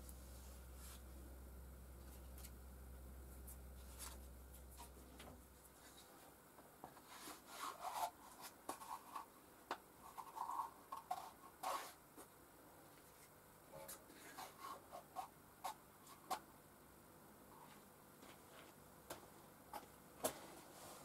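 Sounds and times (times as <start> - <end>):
low background hum: 0.0 - 21.0.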